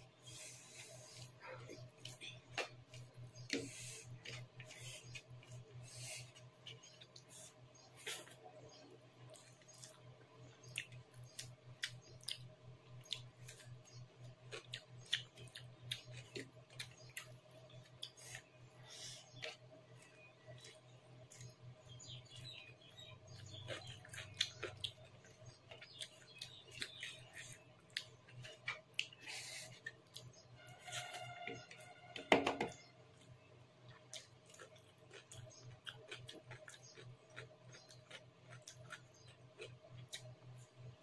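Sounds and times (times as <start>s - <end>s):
fingers squishing rice: 0.1s - 32.2s
wet chewing mouth sounds: 0.2s - 31.2s, 33.9s - 40.8s.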